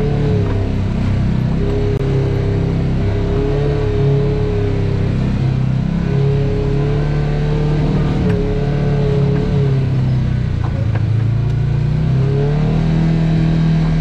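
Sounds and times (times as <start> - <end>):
off-road vehicle engine: 0.0 - 14.0.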